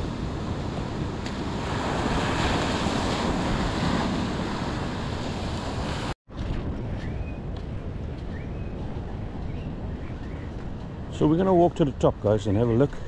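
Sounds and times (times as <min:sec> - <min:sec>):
ocean surf breaking: 0:00.0 - 0:06.2
wind rumbling on microphone: 0:00.0 - 0:13.0.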